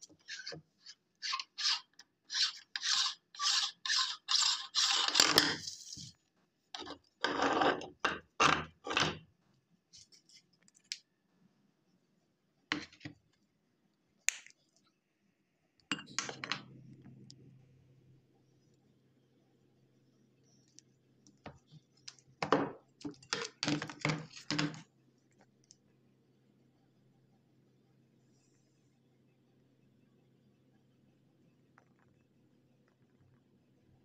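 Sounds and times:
rubbing: 0:00.2 - 0:06.1
metal meat grinder scraping: 0:01.2 - 0:05.6.

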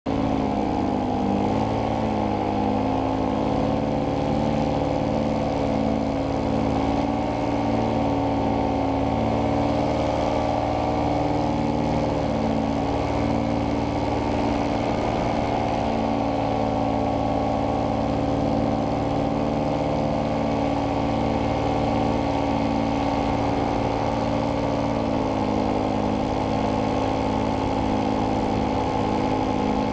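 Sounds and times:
paramotor engine and propeller: 0:00.0 - 0:29.9.

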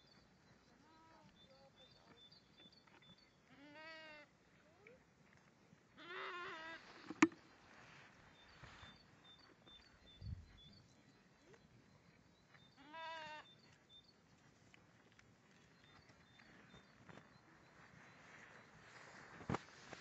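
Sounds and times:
sheep bleating: 0:03.5 - 0:04.2, 0:12.8 - 0:13.5
faint high chirps: 0:07.1 - 0:14.2.

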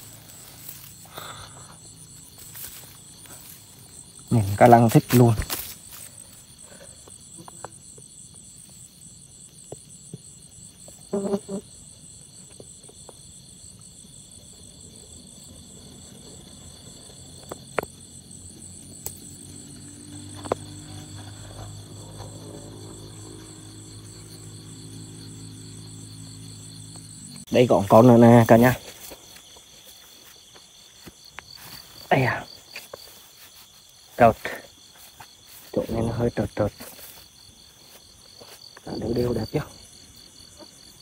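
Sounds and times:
rustle: 0:00.0 - 0:27.5
crickets and night insects trilling: 0:00.0 - 0:41.0.

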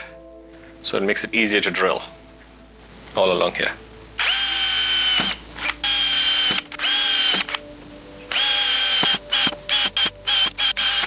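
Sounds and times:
electric drill whining: 0:04.2 - 0:07.6, 0:08.3 - 0:11.0.

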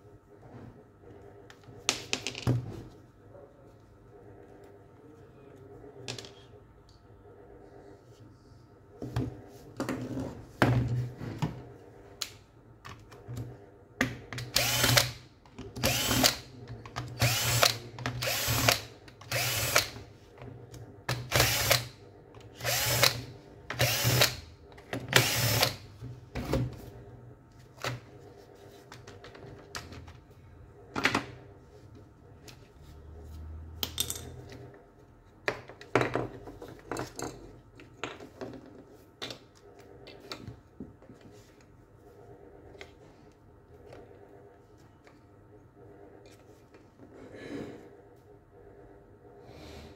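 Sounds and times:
cordless drill whirring in bursts: 0:14.6 - 0:15.1, 0:15.8 - 0:16.4, 0:17.2 - 0:19.9, 0:21.3 - 0:21.8, 0:22.6 - 0:23.2, 0:23.8 - 0:24.4, 0:25.2 - 0:25.8.

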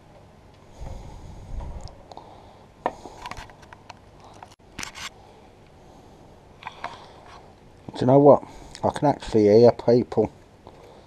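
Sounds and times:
low rumble: 0:00.8 - 0:02.0
sharp clicks and scrapes: 0:03.1 - 0:05.2.

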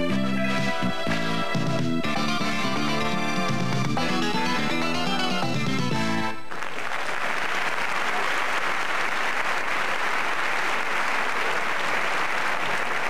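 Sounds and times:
music: 0:00.0 - 0:06.6
audience applauding: 0:05.6 - 0:13.0.

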